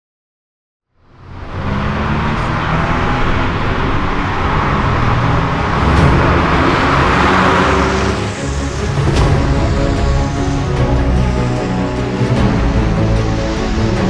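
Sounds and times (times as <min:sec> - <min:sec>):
sports car passing by: 0:01.0 - 0:14.0.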